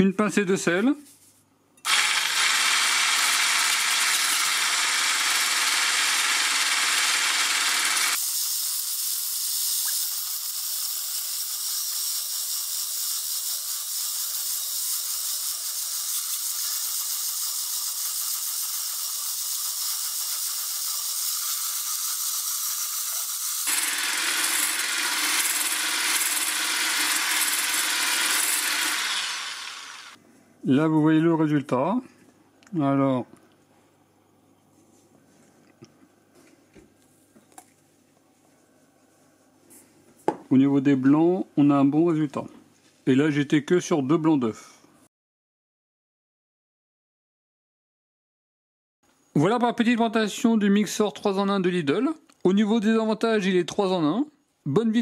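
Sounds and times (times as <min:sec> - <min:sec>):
hand blender whirring: 0:01.9 - 0:30.2.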